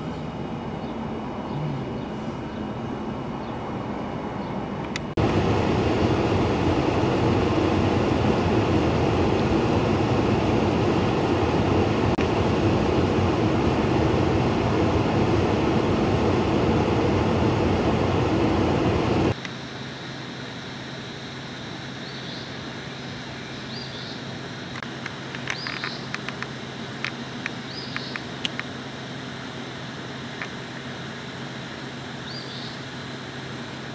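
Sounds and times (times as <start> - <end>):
faint low hum: 0.0 - 5.0
loud steady rushing noise: 0.0 - 33.9.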